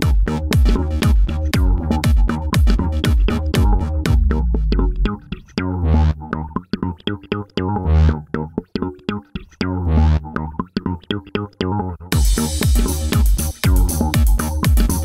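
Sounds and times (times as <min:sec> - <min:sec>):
electronic synthesizer music: 0:00.0 - 0:15.0.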